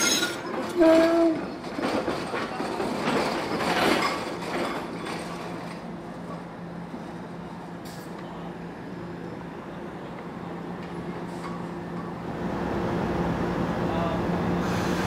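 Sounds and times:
trolley wheels on rails: 0:00.0 - 0:08.3.

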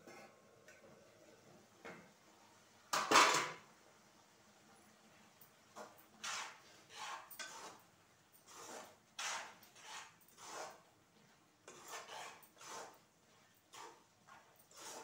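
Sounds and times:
spatula scraping a steel pan: 0:05.8 - 0:10.9, 0:11.6 - 0:15.0.

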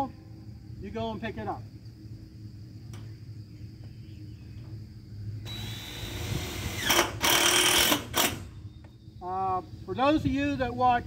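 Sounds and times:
power drill driving screw into metal: 0:05.5 - 0:08.5.

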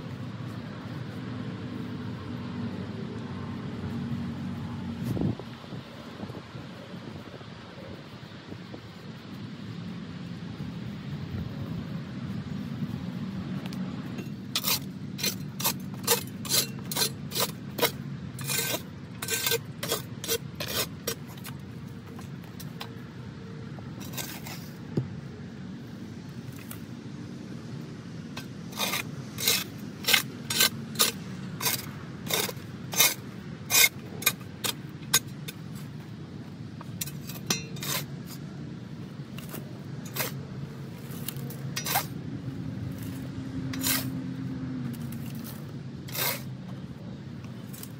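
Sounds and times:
metal shovel scraping soil: 0:14.0 - 0:23.0, 0:23.9 - 0:25.0, 0:28.3 - 0:36.0, 0:36.8 - 0:38.6, 0:39.2 - 0:47.9.

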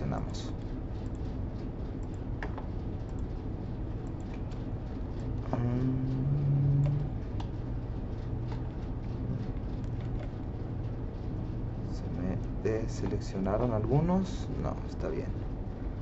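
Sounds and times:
steady low background hum: 0:00.0 - 0:16.0
brief low hum: 0:05.3 - 0:10.3.

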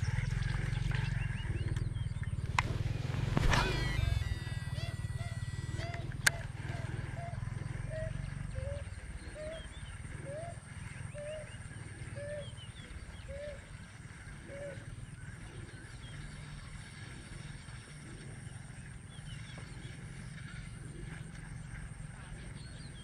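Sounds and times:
high chirps: 0:02.8 - 0:08.1
animal call notes: 0:02.8 - 0:13.7.

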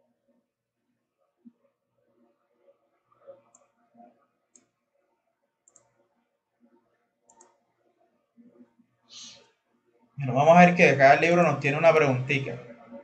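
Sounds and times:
computer mouse clicks: 0:03.4 - 0:03.7, 0:04.5 - 0:04.8, 0:05.6 - 0:06.0, 0:07.3 - 0:07.6.

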